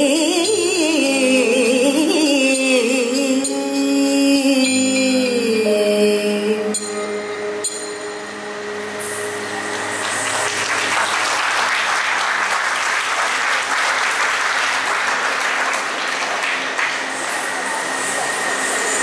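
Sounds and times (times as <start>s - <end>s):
audience applauding: 9.4s - 18.4s.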